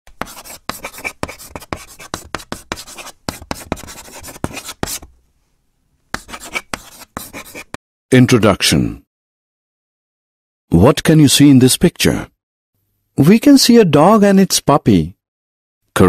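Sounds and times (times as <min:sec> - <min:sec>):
chalk scratching on a blackboard: 0:00.1 - 0:05.1, 0:06.1 - 0:07.8.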